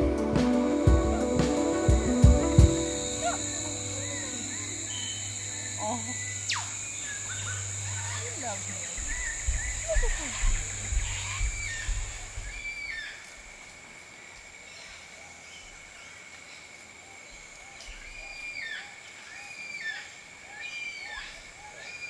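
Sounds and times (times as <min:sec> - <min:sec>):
birds calling: 0:00.0 - 0:13.2
high insect drone: 0:00.0 - 0:22.0.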